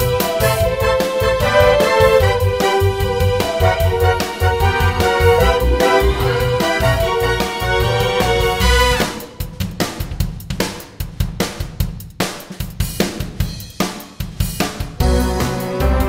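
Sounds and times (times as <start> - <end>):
backing music with bass: 0.0 - 10.6, 14.5 - 16.0
drum kit beat: 0.0 - 16.0.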